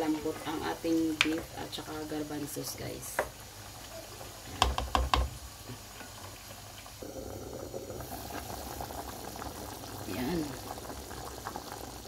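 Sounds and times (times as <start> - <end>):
stew bubbling: 3.2 - 12.0
ladle knocking on a pot: 4.6 - 5.3.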